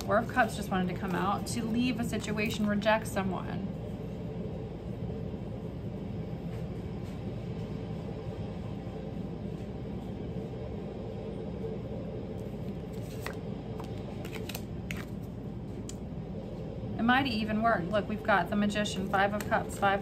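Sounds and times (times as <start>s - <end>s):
cards clicking and rustling: 12.8s - 15.2s.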